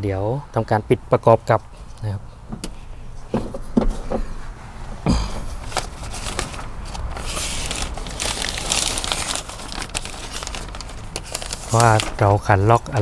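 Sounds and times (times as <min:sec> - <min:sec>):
rustling crinkling: 0:05.6 - 0:13.0.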